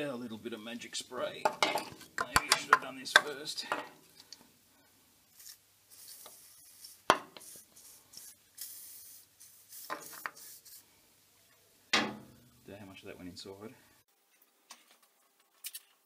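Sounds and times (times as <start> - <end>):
aerosol spray hissing: 6.3 - 10.9.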